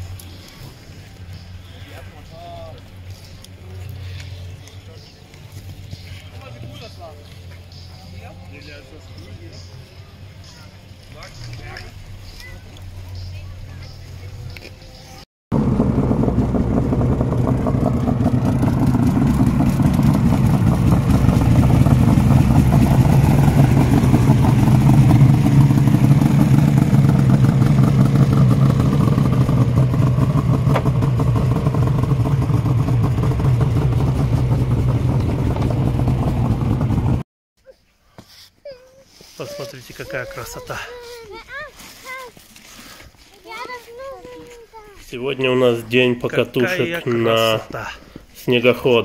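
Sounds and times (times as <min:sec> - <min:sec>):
snowmobile engine running hard: 0:15.6 - 0:37.2.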